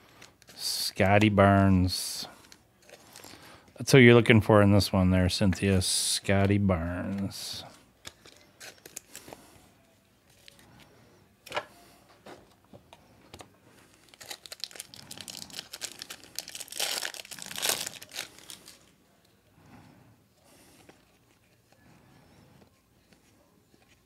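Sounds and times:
foil wrapper crinkling: 2.4 - 3.6, 7.5 - 9.4, 13.9 - 18.9.

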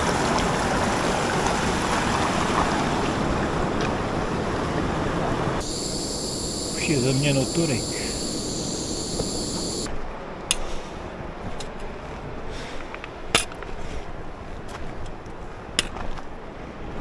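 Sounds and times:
insects buzzing: 5.6 - 9.9.

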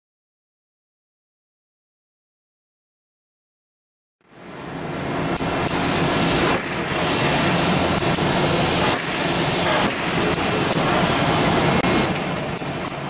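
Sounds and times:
high-pitched machine whine: 4.2 - 13.0
factory machinery rushing: 4.4 - 13.0.

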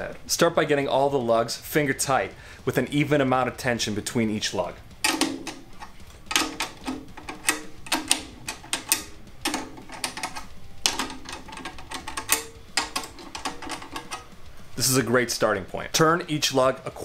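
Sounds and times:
drumstick tapping slack tom: 4.0 - 15.8.

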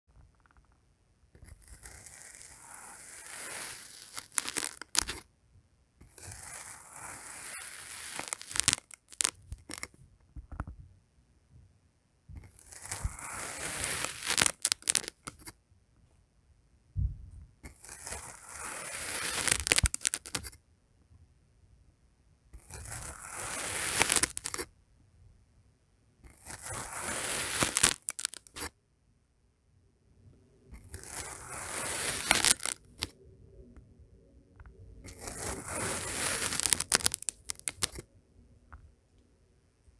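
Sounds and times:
knife scraping through sand: 1.6 - 5.2, 6.0 - 9.8, 12.4 - 15.5, 17.7 - 20.5, 22.6 - 24.6, 26.3 - 28.7, 30.8 - 33.1, 35.1 - 38.0.

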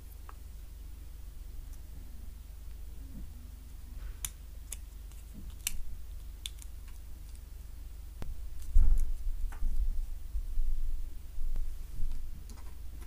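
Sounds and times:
plastic parts snapping: 4.2 - 7.4.

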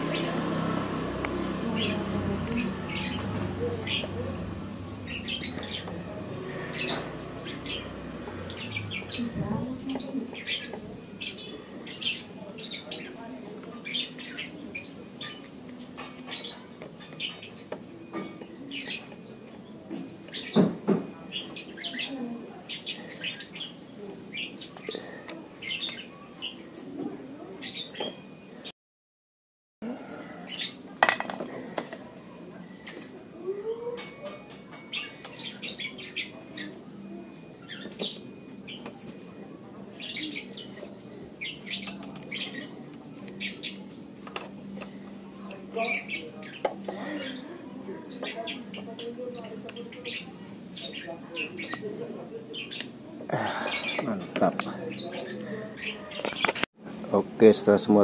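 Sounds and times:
small birds chirping: 0.0 - 28.7, 30.2 - 58.0.

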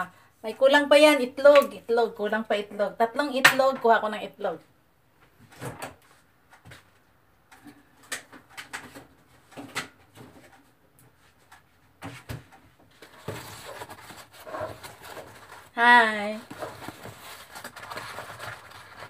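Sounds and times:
egg carton rustling: 13.0 - 19.0.

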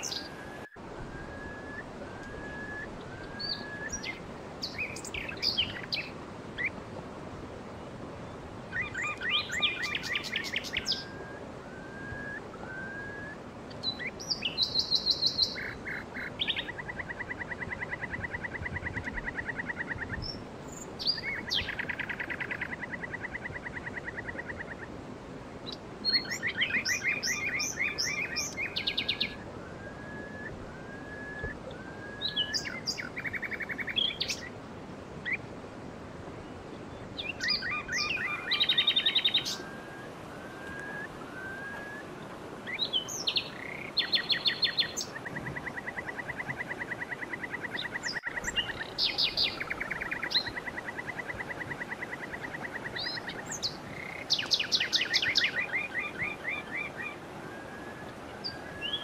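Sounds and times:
rising whistled bird notes: 0.0 - 6.0, 8.7 - 16.7, 26.0 - 34.5, 37.2 - 45.7
faint steady hiss: 0.0 - 59.0
songbirds trilling and chirping: 0.0 - 59.0.

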